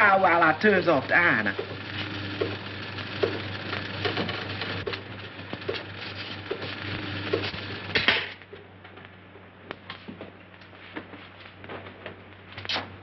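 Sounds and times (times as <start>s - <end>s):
laundry ironer humming: 0.0s - 8.3s.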